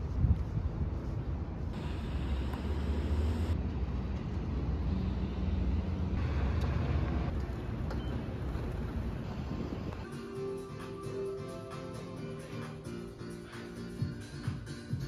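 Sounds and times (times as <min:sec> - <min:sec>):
traffic rumble: 0:00.0 - 0:10.1.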